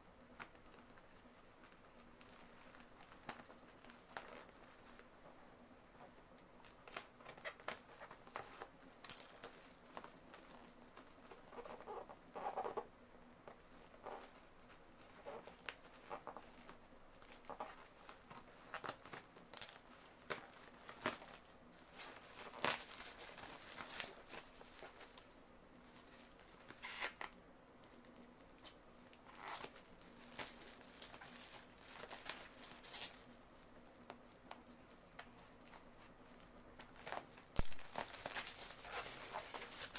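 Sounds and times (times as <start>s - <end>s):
plastic wrapping crinkling: 0.4s - 5.3s, 13.5s - 39.9s.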